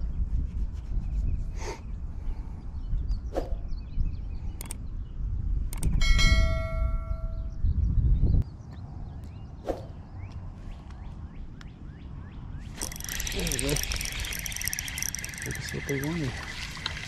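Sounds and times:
wind rumble on microphone: 0:00.0 - 0:14.4
sharp clicks: 0:04.6 - 0:04.8, 0:05.7 - 0:06.0, 0:12.8 - 0:16.1
bell ding: 0:06.0 - 0:07.5.

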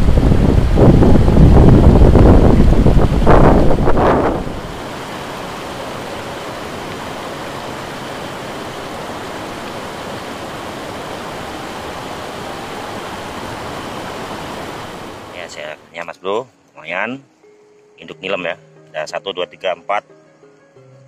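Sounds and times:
wind buffeting microphone: 0:00.0 - 0:07.4
river water rushing: 0:00.0 - 0:16.0.

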